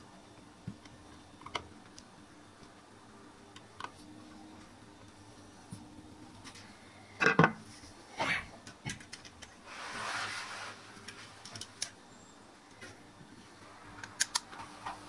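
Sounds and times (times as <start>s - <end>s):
rubbing sound: 9.6s - 11.4s
short scrape: 9.7s - 10.8s.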